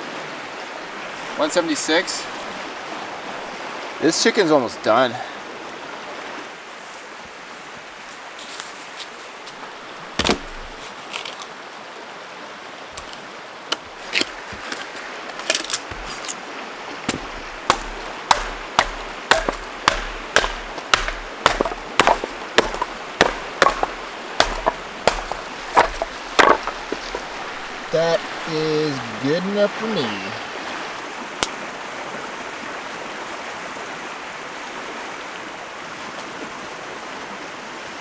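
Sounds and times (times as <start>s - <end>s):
river rushing: 0.0s - 38.0s
knife splitting wood knocks: 10.2s - 10.8s, 13.0s - 16.3s, 17.1s - 27.3s.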